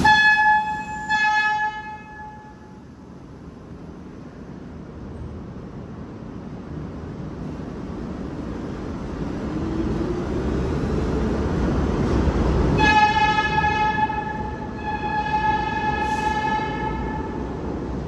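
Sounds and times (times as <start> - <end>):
train horn blast: 0.0 - 2.8, 12.8 - 17.4
subway train rumbling past: 0.0 - 18.0.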